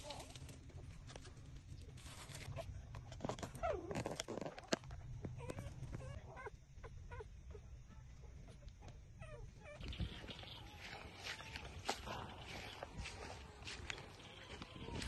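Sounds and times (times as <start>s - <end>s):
puppies squeaking and whimpering: 5.4s - 7.6s, 8.8s - 15.0s
puppy wavering cry: 9.2s - 11.0s.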